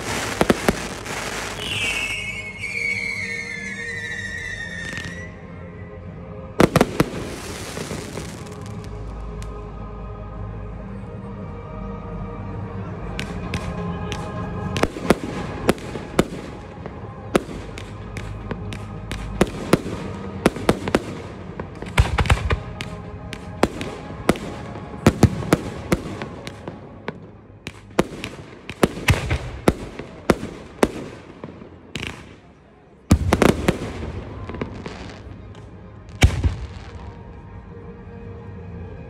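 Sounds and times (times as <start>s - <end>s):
fireworks bangs: 0.0s - 3.4s
music playing: 0.0s - 39.0s.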